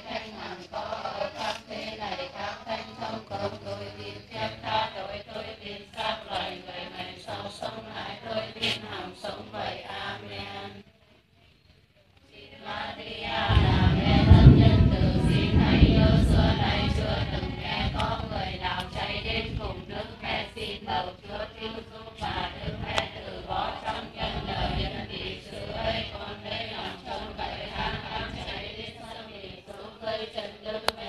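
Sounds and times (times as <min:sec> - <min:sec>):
women chanting prayers in unison: 0:00.0 - 0:31.0
low rumble: 0:13.3 - 0:19.8.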